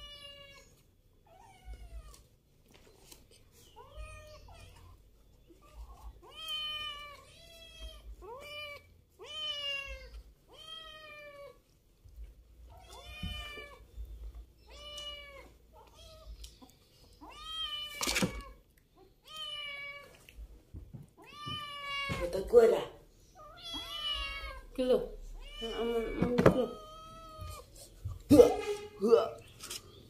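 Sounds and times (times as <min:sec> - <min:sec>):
cat meowing: 0:21.2 - 0:22.3, 0:23.4 - 0:27.7.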